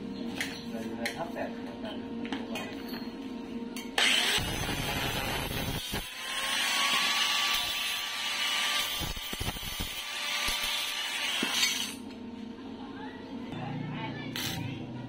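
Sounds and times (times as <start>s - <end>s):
angle grinder grinding metal: 4.0s - 12.0s.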